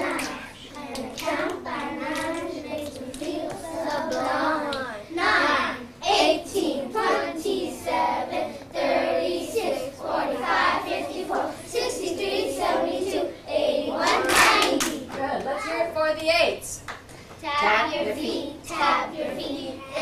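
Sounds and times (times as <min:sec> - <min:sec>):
children clapping: 0:00.0 - 0:04.9, 0:14.0 - 0:15.5.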